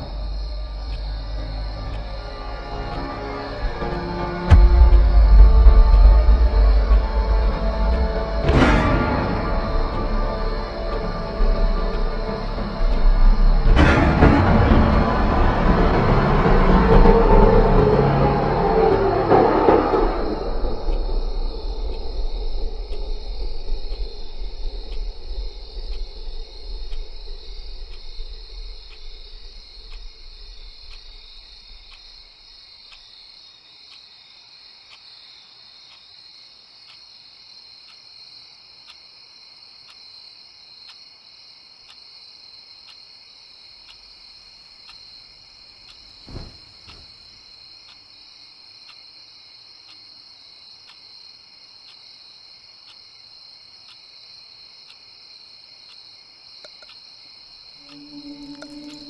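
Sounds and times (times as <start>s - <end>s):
faint ticks: 0.0s - 3.0s, 20.3s - 59.0s
low rumble: 0.0s - 32.1s, 57.8s - 59.0s
crickets chirping: 0.0s - 59.0s
short low thump: 4.5s - 10.1s, 46.3s - 47.2s.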